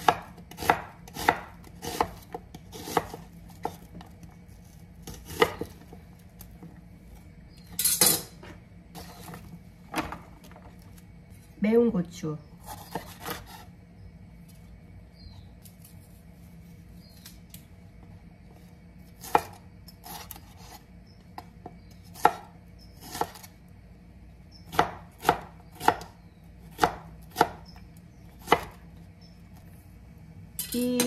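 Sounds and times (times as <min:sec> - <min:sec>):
knife chopping on wooden board: 0:00.0 - 0:04.1, 0:05.0 - 0:06.0, 0:12.6 - 0:13.6, 0:19.2 - 0:20.8, 0:22.1 - 0:23.5, 0:24.7 - 0:27.6, 0:28.4 - 0:28.8.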